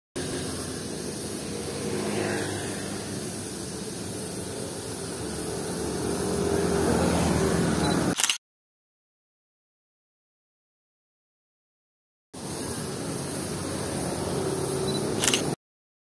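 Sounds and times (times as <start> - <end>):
passing vehicle engines: 0.2 - 8.2, 12.4 - 15.6.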